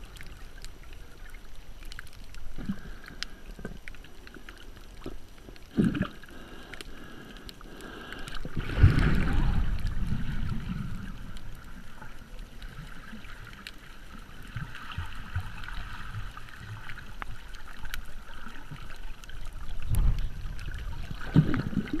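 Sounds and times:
faint clicks: 0.0 - 15.1
low rumbling underwater water movement: 0.0 - 22.0.

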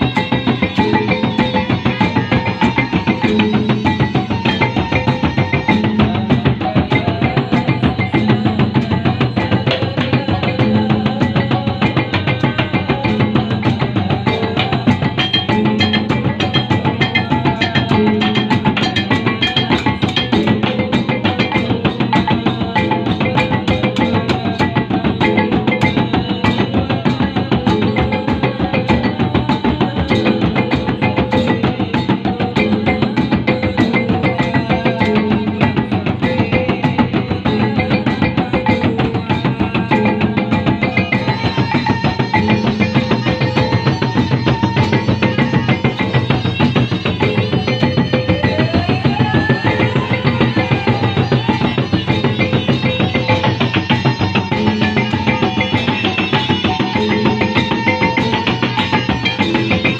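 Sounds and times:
drums beaten with sticks: 0.0 - 59.9
hand cymbals clashing: 29.6 - 59.9.

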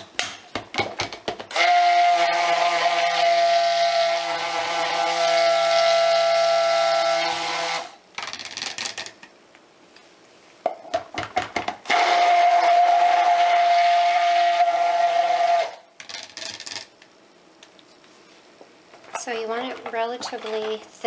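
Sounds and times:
stick blender motor whine: 1.5 - 8.0, 11.9 - 15.8.

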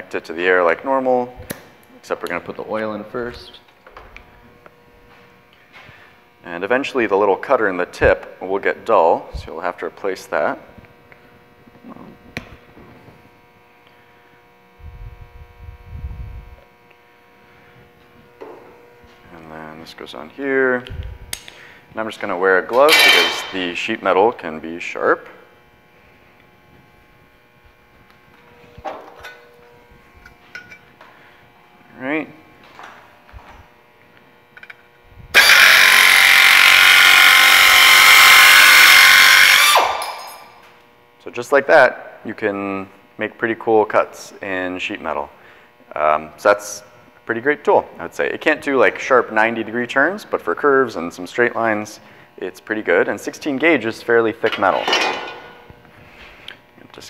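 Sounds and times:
steady electrical hum: 0.0 - 57.0
air-powered nibbler cutting metal: 34.5 - 41.0.

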